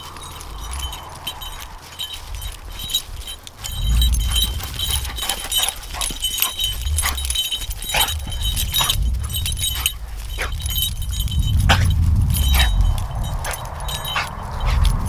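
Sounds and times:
low rumble: 0.0 - 15.0
metal pieces jingling: 0.0 - 15.0.

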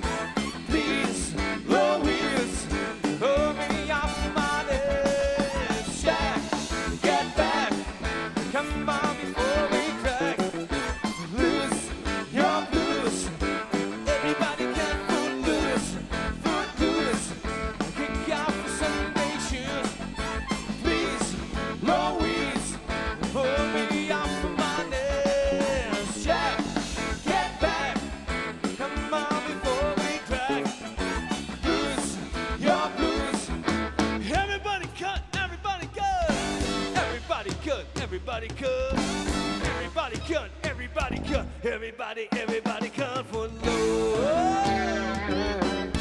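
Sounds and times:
keyboard: 0.0 - 34.3, 43.6 - 46.0
bass: 0.0 - 42.0, 42.8 - 46.0
drum kit: 0.0 - 46.0.

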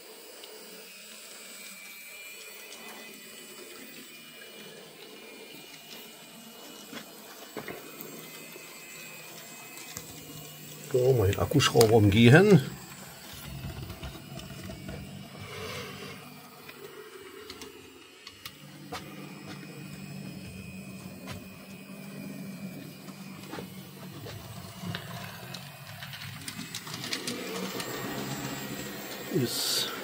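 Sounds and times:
model train motor hum: 0.0 - 30.0
wheels clicking on rails: 23.4 - 30.0.

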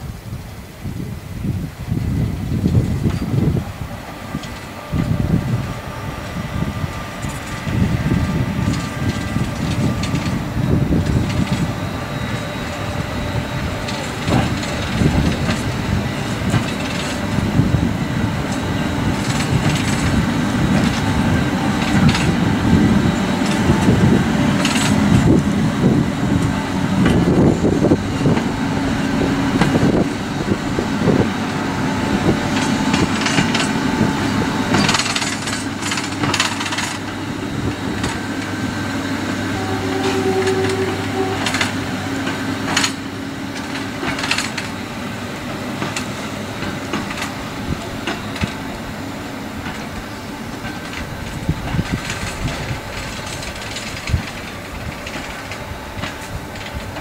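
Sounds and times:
locomotive rumbling: 0.0 - 57.0
wheels clanking over rail joints: 1.9 - 57.0.

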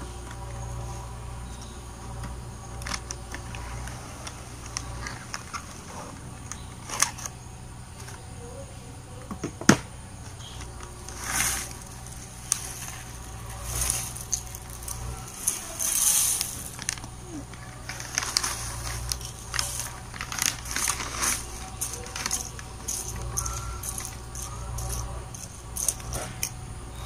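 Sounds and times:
cereal box and foil bag crinkling: 10.6 - 27.0
burst of rustling: 11.0 - 26.4.

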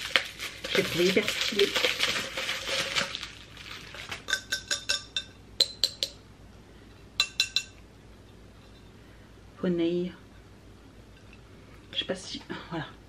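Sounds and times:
drinking glasses clinking: 4.3 - 6.2, 7.2 - 7.8.

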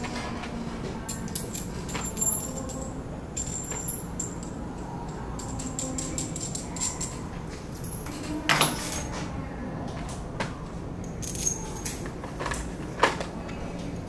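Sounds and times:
metal bolts and nuts clinking: 1.0 - 9.2, 11.0 - 13.2.

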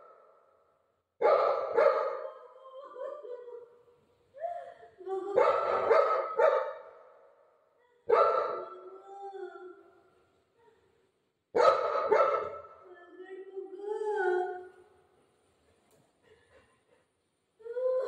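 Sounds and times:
dog barking: 1.2 - 2.4, 5.4 - 7.1, 8.1 - 8.8, 11.6 - 12.8.

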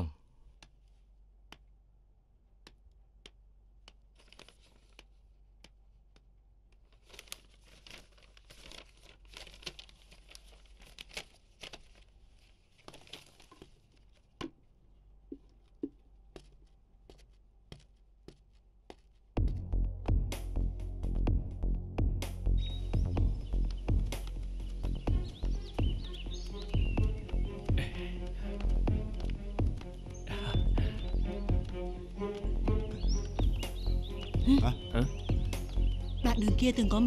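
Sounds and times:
paper rustling and crinkling: 4.1 - 5.2, 6.7 - 14.4.

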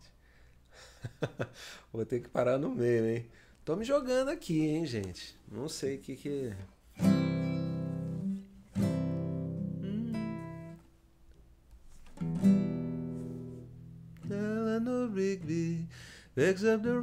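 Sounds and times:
acoustic guitar chords ringing: 7.0 - 10.8, 12.2 - 17.0.

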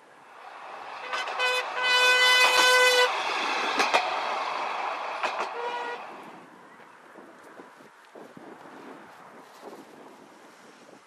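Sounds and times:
rail wagon rolling on track: 0.0 - 11.0
wheels clicking over rail joints: 0.5 - 7.6
horn toots: 1.0 - 3.1, 5.5 - 6.1.

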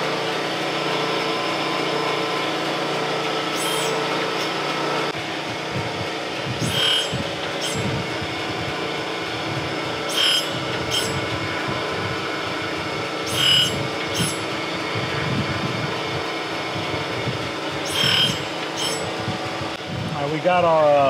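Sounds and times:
surface grinder humming: 0.0 - 19.8
ringing grinding hiss: 3.2 - 5.0, 6.6 - 9.1, 9.8 - 14.7, 17.7 - 19.6.

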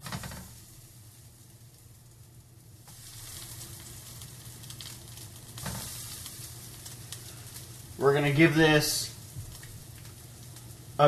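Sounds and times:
fish fillets sizzling in a frying pan: 0.0 - 11.0.

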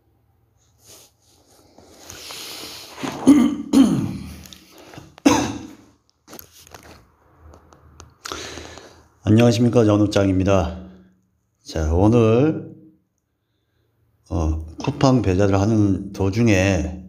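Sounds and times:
man coughing: 3.0 - 4.5, 5.2 - 5.9.

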